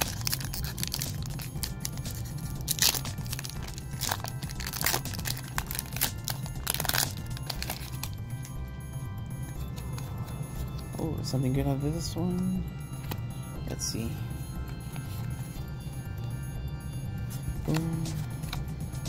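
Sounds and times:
foil wrapper crinkling: 0.0s - 8.2s
light background music: 0.0s - 19.0s.

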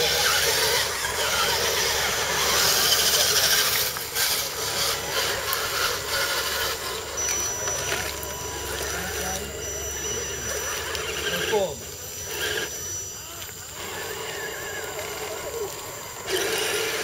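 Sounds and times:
small electric motors whirring: 0.0s - 17.0s
thin high-pitched whine: 0.0s - 17.0s.

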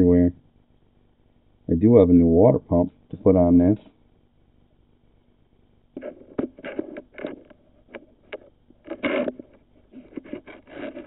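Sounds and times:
probe cable scraping in metal passage: 6.0s - 11.0s.

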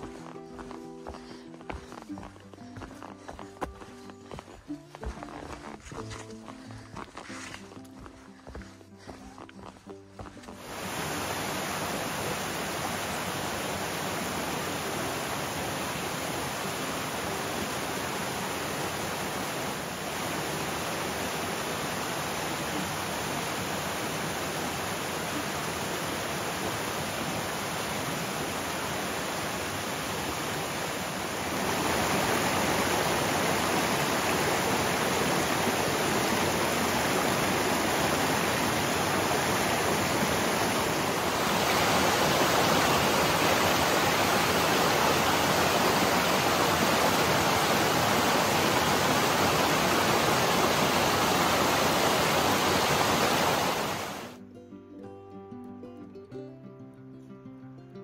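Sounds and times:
steady rushing noise: 10.6s - 54.4s.

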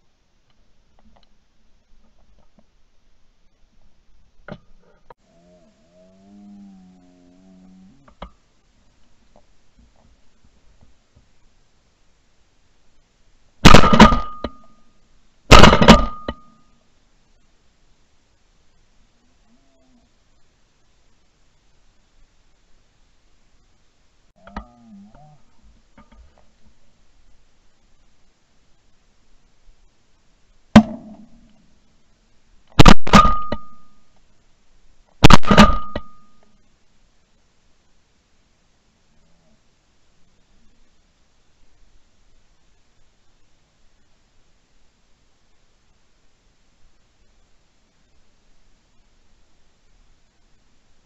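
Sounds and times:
shotgun shots: 13.6s - 14.6s, 15.5s - 16.4s, 32.8s - 33.8s, 35.2s - 36.2s
sharp cracks: 13.6s - 14.8s, 15.5s - 16.6s, 32.7s - 34.0s, 35.1s - 36.4s.

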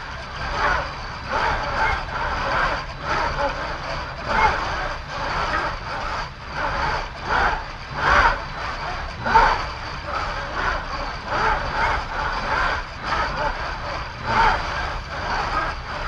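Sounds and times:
electric actuators whirring: 0.0s - 16.0s
steady high hum: 0.0s - 16.0s.

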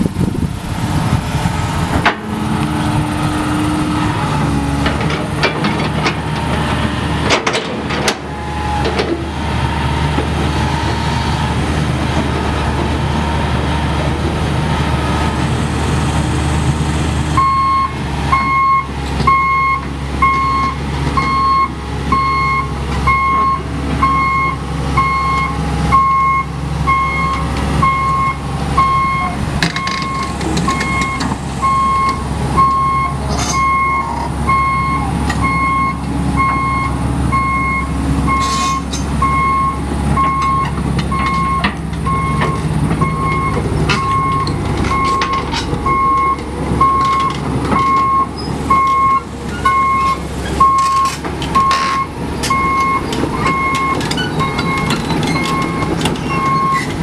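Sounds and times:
excavator diesel engine running: 0.0s - 57.0s
travel alarm beeping: 39.2s - 56.9s.

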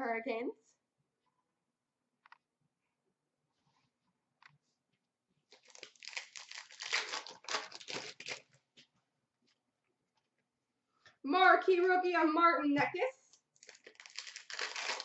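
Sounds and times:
foil wrapper tearing and crinkling: 5.5s - 8.5s, 13.6s - 15.0s.

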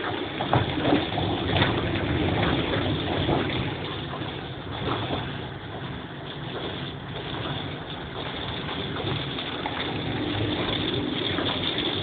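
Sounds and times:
sharp water splashes: 0.0s - 12.0s
tyres through standing water: 0.0s - 12.0s.

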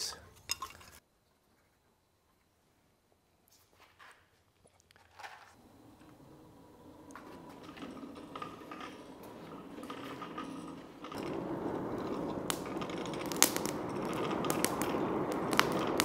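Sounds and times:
wood fire popping and crackling: 4.9s - 16.0s
forge blower gears turning: 5.6s - 16.0s.

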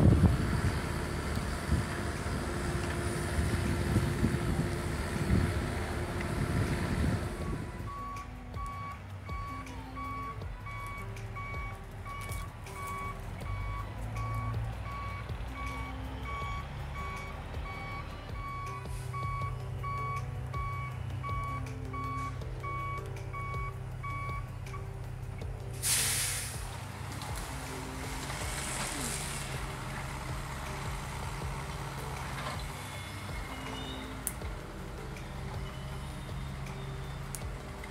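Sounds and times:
low engine rumble: 0.0s - 37.9s
backup alarm beeping: 7.4s - 24.8s
loud hiss: 25.7s - 26.8s, 27.4s - 29.9s.

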